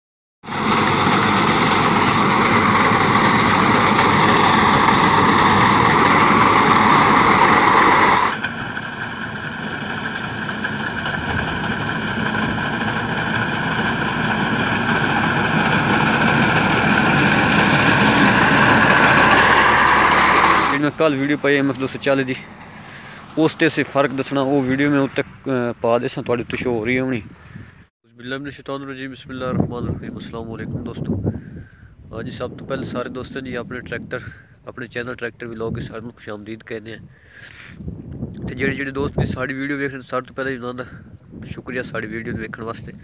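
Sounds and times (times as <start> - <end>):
tractor engine under load: 0.5 - 26.7.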